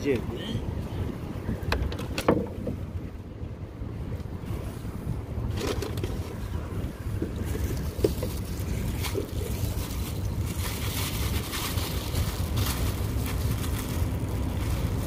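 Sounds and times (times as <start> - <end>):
wind buffeting microphone: 0.0 - 15.0
plastic bag crinkling: 7.8 - 15.0.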